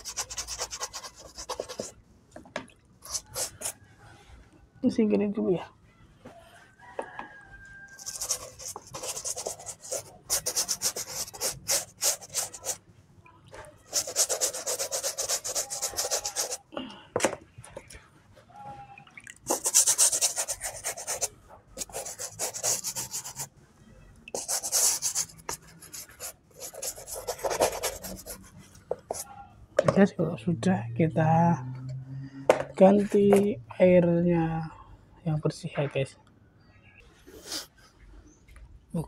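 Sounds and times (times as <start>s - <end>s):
brush scrubbing shoe sole: 0.0s - 1.9s, 3.0s - 3.8s, 8.0s - 12.8s, 13.9s - 16.7s, 19.5s - 23.5s, 24.4s - 28.4s.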